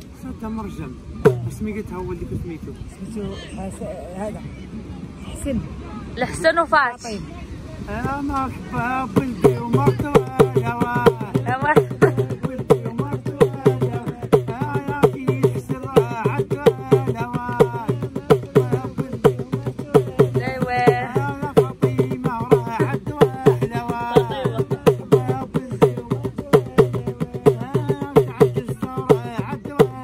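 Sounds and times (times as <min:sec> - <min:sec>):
hand drum beating: 0:01.2 - 0:01.6, 0:09.1 - 0:30.0
man singing folk song: 0:07.9 - 0:30.0.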